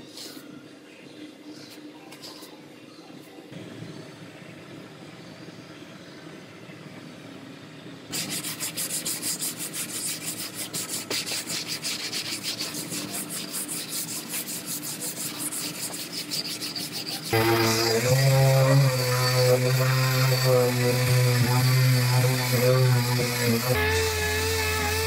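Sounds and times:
hand-sanding with sandpaper: 8.1s - 25.0s.

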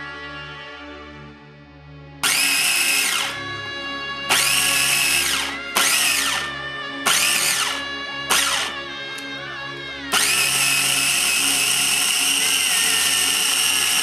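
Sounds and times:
food processor chopping: 2.2s - 3.4s, 4.3s - 6.5s, 7.1s - 8.8s, 10.1s - 14.0s
motor whine spinning down: 2.2s - 9.3s, 10.1s - 14.0s.

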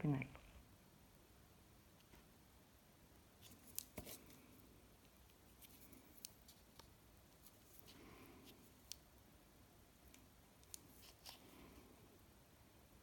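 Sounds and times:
light handling sounds: 3.4s - 9.2s, 10.0s - 11.9s.

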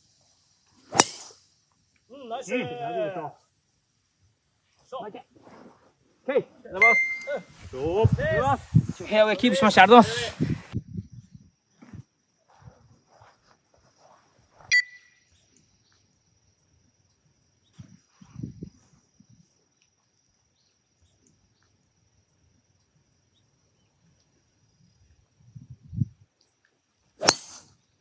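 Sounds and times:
high insect trill: 0.0s - 28.0s
sharp metallic clink: 0.9s - 1.3s, 27.2s - 27.7s
wind rumble on microphone: 7.5s - 13.0s, 17.8s - 19.5s, 24.8s - 26.3s.

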